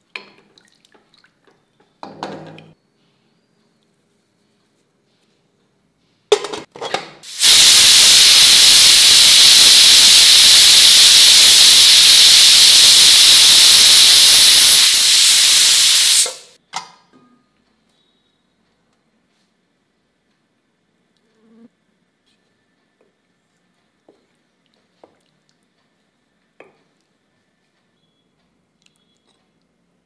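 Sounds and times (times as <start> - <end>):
pressure cooker whistle hissing: 7.2 - 16.6.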